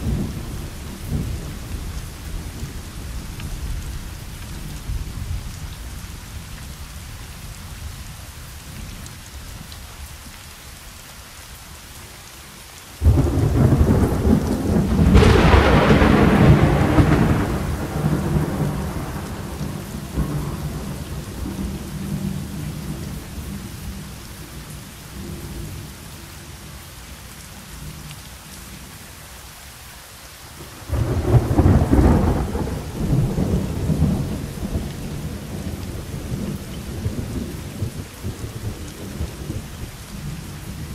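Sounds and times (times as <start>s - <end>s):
thunder claps and rumbles: 0.0s - 6.2s, 13.0s - 24.1s, 30.8s - 40.9s
steady rain: 0.0s - 40.9s.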